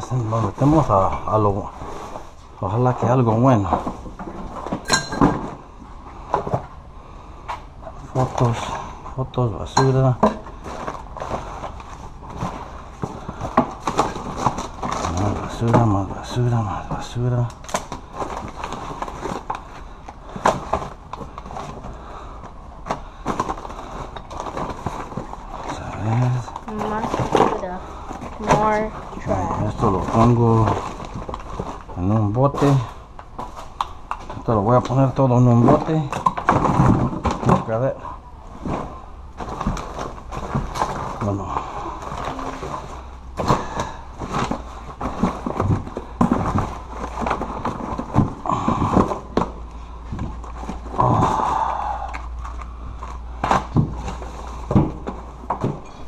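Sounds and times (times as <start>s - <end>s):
sharp crinkles and knocks: 0.0s - 6.8s, 7.4s - 56.0s
papers rustling in cardboard box: 10.4s - 37.8s, 38.4s - 56.0s
cardboard box rustling and scraping: 42.0s - 51.0s.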